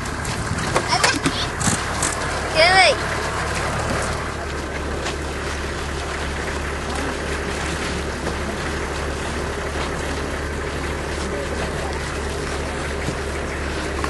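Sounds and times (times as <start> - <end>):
faint crowd voices: 4.1 - 14.0.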